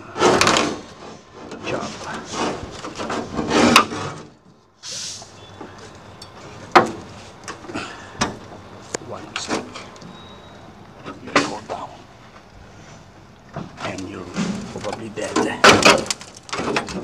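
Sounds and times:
short hiss: 4.8s - 5.4s.

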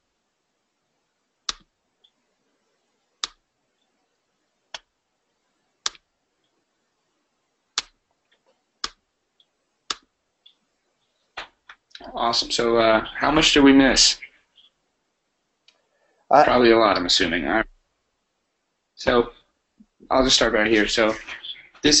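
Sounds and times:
computer mouse clicks: 1.5s - 2.2s, 3.2s - 3.4s, 5.8s - 6.0s, 7.8s - 10.6s.

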